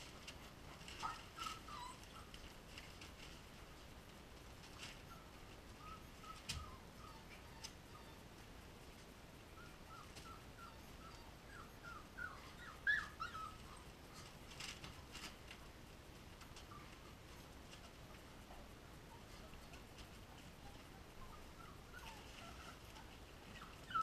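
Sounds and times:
puppies whimpering: 1.0s - 2.4s, 5.1s - 8.3s, 9.6s - 14.0s, 20.4s - 24.0s.

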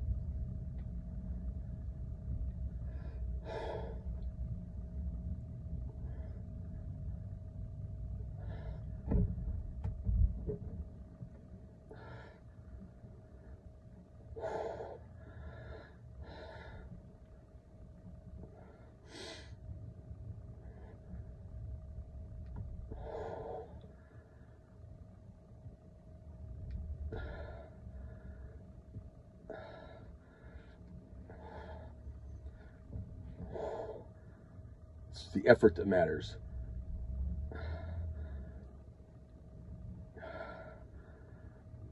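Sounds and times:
steady low hum: 0.0s - 41.9s
man breathing hard: 2.7s - 4.3s, 8.2s - 9.4s, 11.9s - 12.7s, 14.3s - 17.0s, 18.4s - 19.6s, 22.9s - 24.8s, 27.1s - 28.7s, 29.4s - 34.7s, 37.5s - 38.8s, 40.1s - 41.9s.

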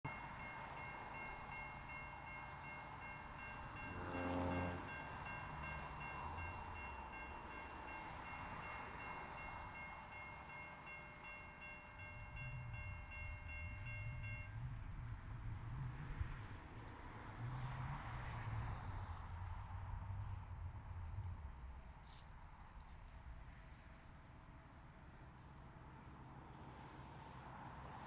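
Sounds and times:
train rumble: 0.0s - 28.0s
train horn blast: 3.8s - 5.0s.

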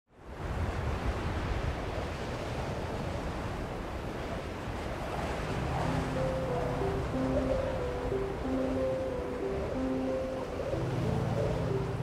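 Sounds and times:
wind blowing through trees: 0.1s - 12.0s
wind rumble on microphone: 0.2s - 8.4s.

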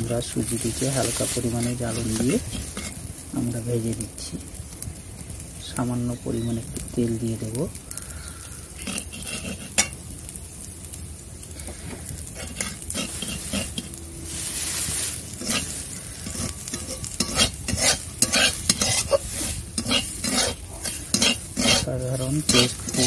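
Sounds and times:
metal spatula scraping a pan: 0.0s - 3.0s, 8.8s - 10.0s, 12.3s - 23.0s
food sizzling: 0.0s - 23.0s.

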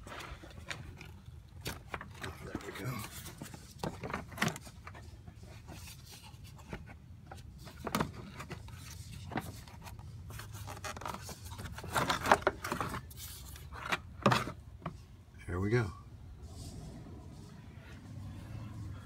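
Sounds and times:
plastic knocks and scrapes: 0.0s - 15.0s.

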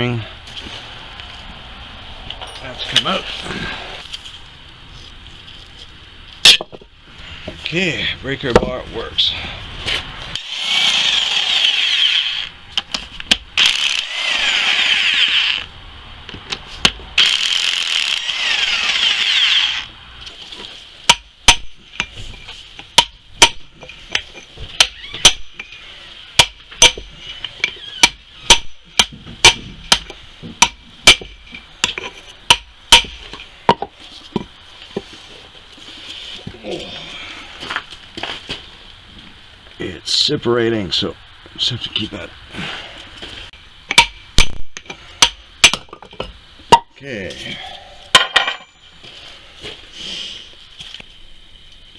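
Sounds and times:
impact wrench running: 10.4s - 12.5s, 17.2s - 19.9s.

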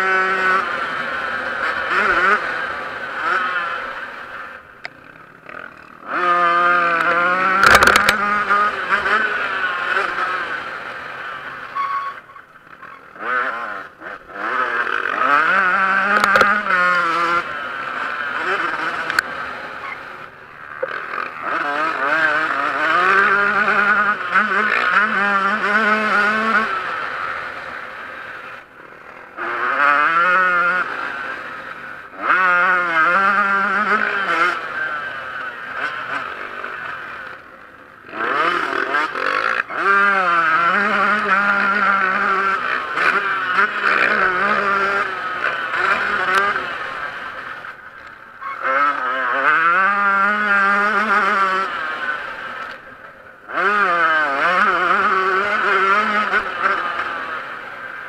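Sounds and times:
two-stroke motorcycle engine revving: 0.0s - 58.0s.

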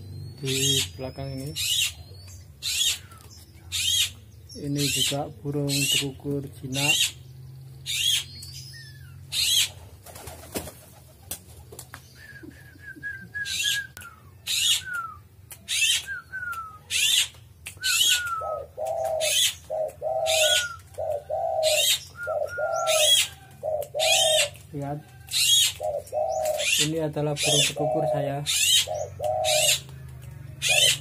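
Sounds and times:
high bird chirps: 0.0s - 9.7s, 13.4s - 24.6s
doves cooing: 0.0s - 31.0s.

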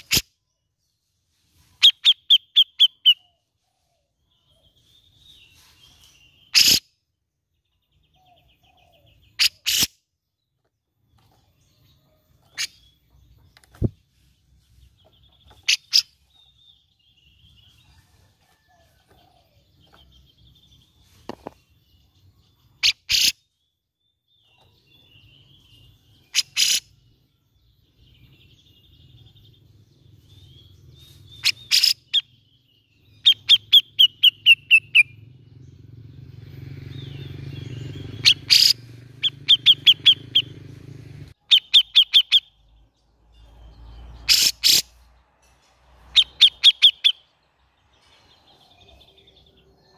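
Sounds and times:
bulbul calling: 1.8s - 3.4s, 6.4s - 6.9s, 8.2s - 10.0s, 15.1s - 16.4s, 22.8s - 23.5s, 26.2s - 27.0s, 31.2s - 32.4s, 33.1s - 35.8s, 36.9s - 42.7s, 44.2s - 45.0s, 46.1s - 47.3s.

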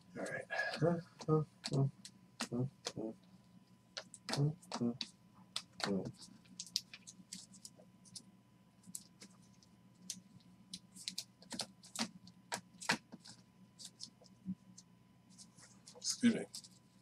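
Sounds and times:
cards clicking and tapping on table: 11.0s - 14.1s.

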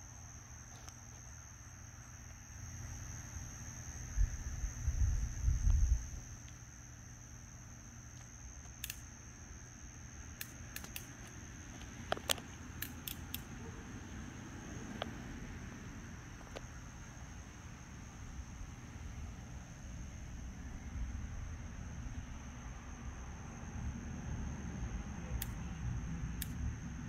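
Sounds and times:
crickets chirping: 0.0s - 27.0s
sharp clicks: 8.2s - 9.1s, 10.4s - 13.5s, 25.4s - 25.6s, 26.4s - 26.6s
low rumble: 18.2s - 25.2s.

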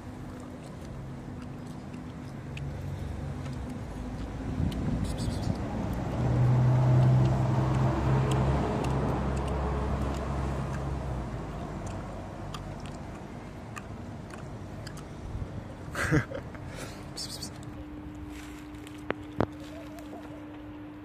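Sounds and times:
vehicle engine hum: 0.0s - 21.0s.

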